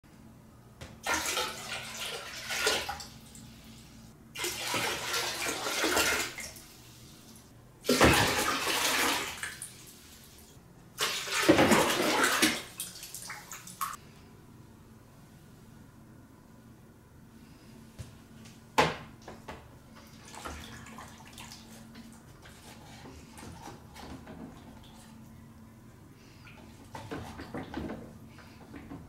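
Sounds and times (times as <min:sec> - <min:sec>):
water pouring into a tank: 0:01.0 - 0:03.3, 0:04.4 - 0:06.6, 0:07.9 - 0:09.8, 0:11.0 - 0:14.0.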